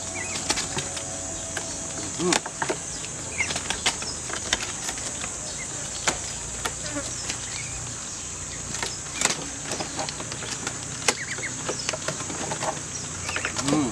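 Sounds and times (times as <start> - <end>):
high-pitched insect drone: 0.0 - 4.4.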